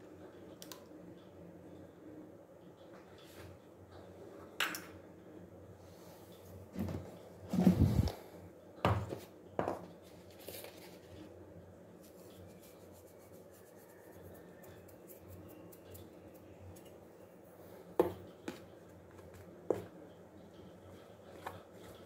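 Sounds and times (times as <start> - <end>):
kitchen knocks and clunks: 8.8 - 9.8.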